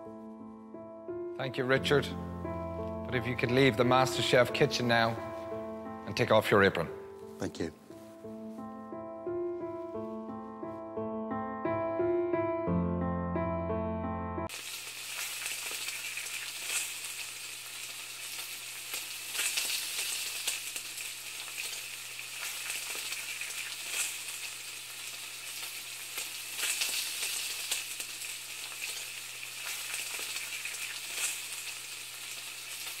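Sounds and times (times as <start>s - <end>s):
crackling hiss: 14.5s - 33.0s.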